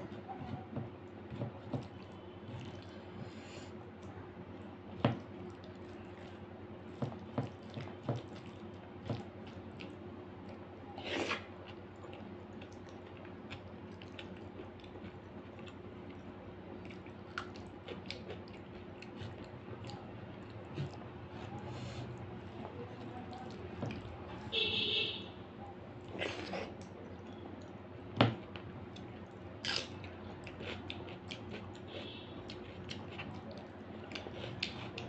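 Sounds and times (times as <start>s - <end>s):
chewing and lip smacking: 16.8s - 21.0s, 28.9s - 35.0s.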